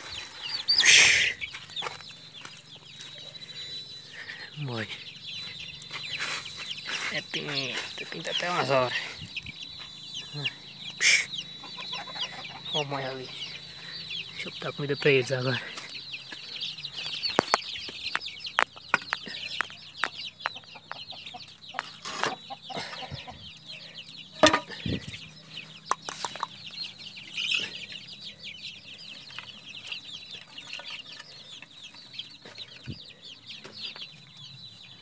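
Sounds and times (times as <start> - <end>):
chicks peeping: 0.0 - 35.0
feed troughs knocking: 24.4 - 24.8.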